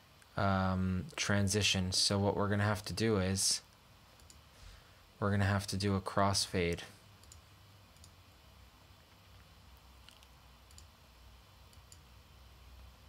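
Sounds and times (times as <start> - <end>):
low steady hum: 0.0 - 13.0
computer mouse clicks: 4.2 - 4.4, 7.2 - 8.2, 9.4 - 10.9, 11.7 - 12.1.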